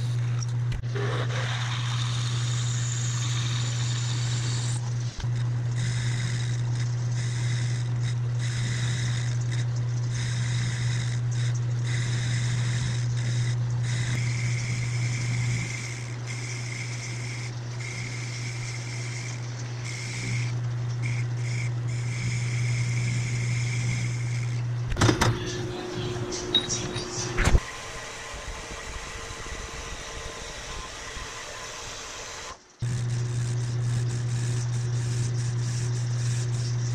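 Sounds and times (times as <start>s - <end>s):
metal cutting hiss and whistle: 1.0s - 4.8s
lathe motor humming: 1.8s - 36.9s.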